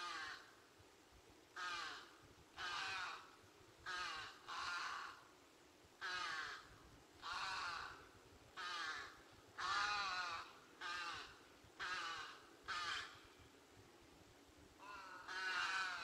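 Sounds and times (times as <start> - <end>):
loud animal calls: 1.6 - 5.2, 8.6 - 13.2, 14.8 - 16.0.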